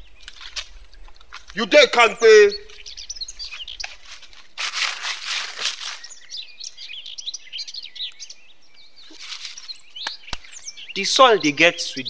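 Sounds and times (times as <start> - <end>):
small birds chirping: 0.0 - 12.0
dry leaves rustling: 2.7 - 6.8, 9.0 - 10.6.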